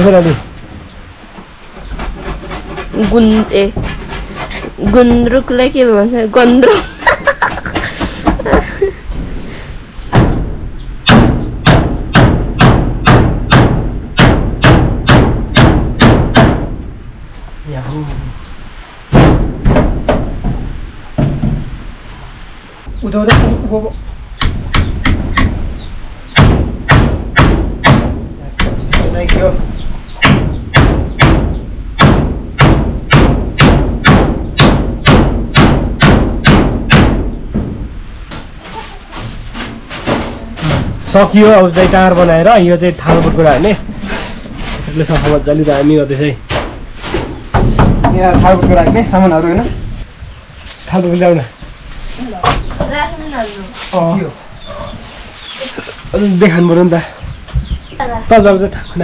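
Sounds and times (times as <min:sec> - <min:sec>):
hammer blows on wood: 0:24.4 - 0:29.5.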